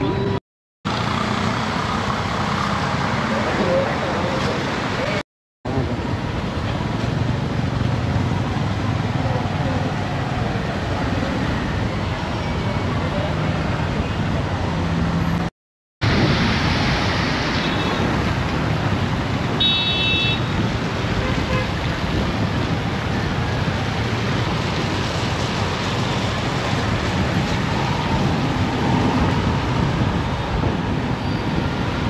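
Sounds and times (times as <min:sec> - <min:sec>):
road traffic noise: 0:00.0 - 0:32.0
wind on microphone: 0:20.4 - 0:32.0.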